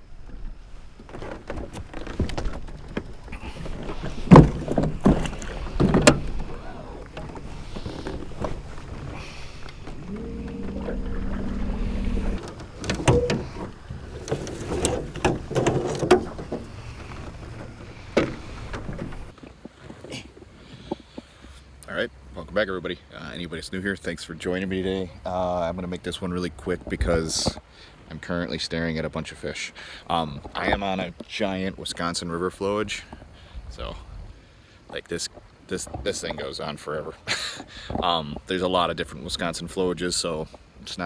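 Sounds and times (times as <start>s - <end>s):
steady hum: 5.7s - 15.6s
low rumble: 7.0s - 14.0s.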